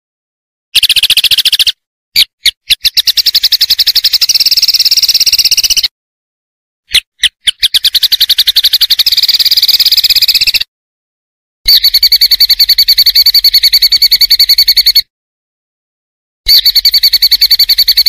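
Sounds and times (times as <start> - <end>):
high-pitched pulsed bird trill: 0.8 - 5.9, 6.9 - 10.7, 11.7 - 15.1, 16.5 - 18.0.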